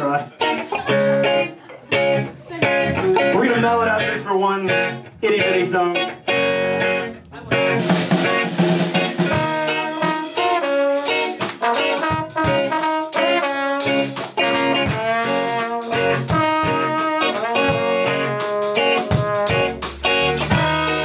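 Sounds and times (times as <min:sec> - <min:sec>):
guitar: 0:00.0 - 0:21.0
ska band playing: 0:00.0 - 0:21.0
horn section melody: 0:06.4 - 0:21.0.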